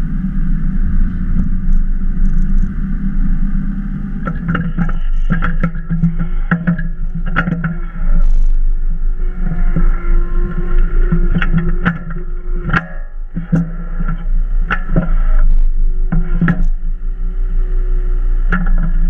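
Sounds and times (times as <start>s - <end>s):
hydraulic whine: 0.0s - 19.0s
sharp clicks and knocks: 4.2s - 8.7s, 10.6s - 16.8s, 18.5s - 19.0s.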